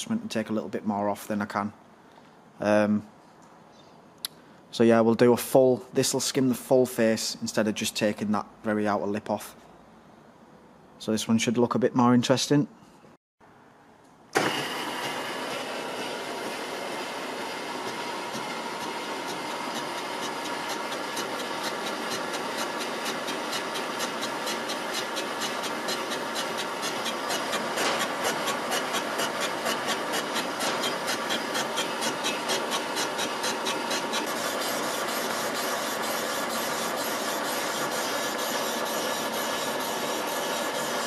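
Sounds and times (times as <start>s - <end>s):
milling machine cutting metal: 14.4s - 41.0s.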